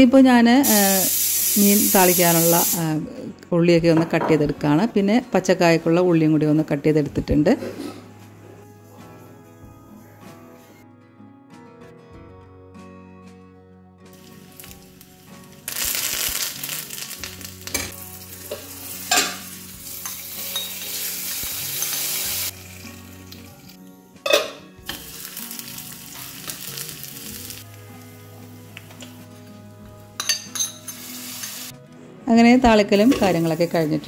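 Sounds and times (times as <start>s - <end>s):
food sizzling in hot oil: 0.6s - 2.9s, 14.1s - 23.8s, 24.8s - 29.4s, 30.2s - 31.7s
spoon clinking: 20.0s - 20.9s, 30.2s - 31.6s.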